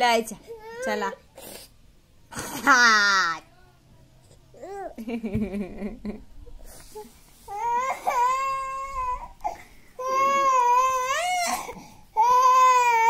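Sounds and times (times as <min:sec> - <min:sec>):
toddler crying: 0:07.5 - 0:13.0.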